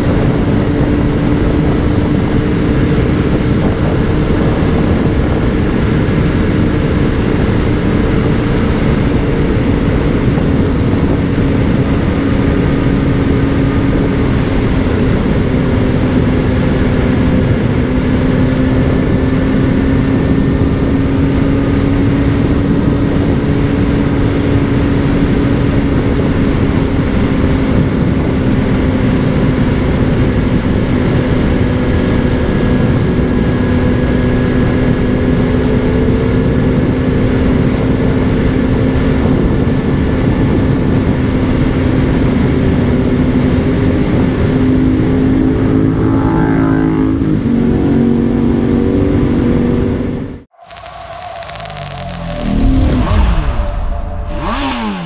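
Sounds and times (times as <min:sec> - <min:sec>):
wind rush: 0:00.0 - 0:31.0, 0:50.2 - 0:55.0
motorcycle engine cruising: 0:00.0 - 0:55.0.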